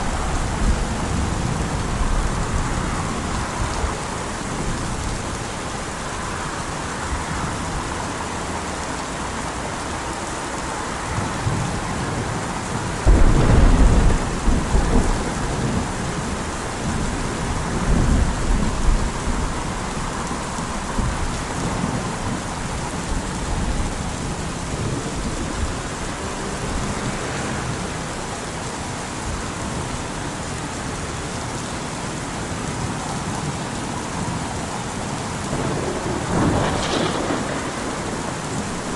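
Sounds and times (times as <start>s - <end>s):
steady rain: 0.0s - 38.9s
rolling thunder: 11.4s - 20.1s, 35.4s - 38.9s.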